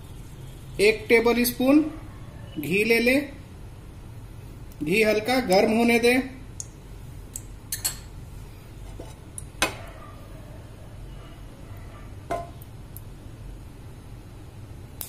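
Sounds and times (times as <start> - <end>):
pan and spoon clinking: 7.7 - 8.1.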